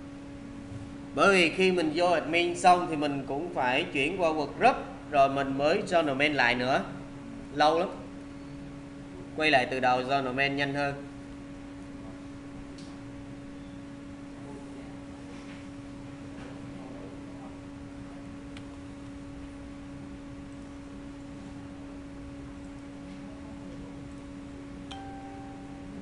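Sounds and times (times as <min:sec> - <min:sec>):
electrical hum: 0:00.0 - 0:26.0.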